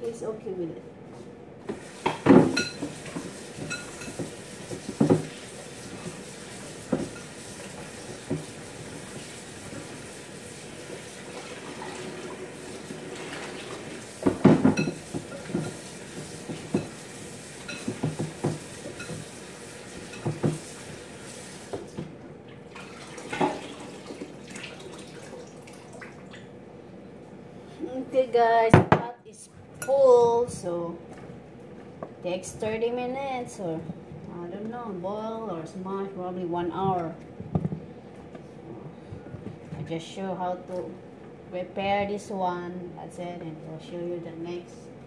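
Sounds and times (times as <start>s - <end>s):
metal pots and utensils clattering: 2.0s - 5.3s, 14.3s - 17.0s.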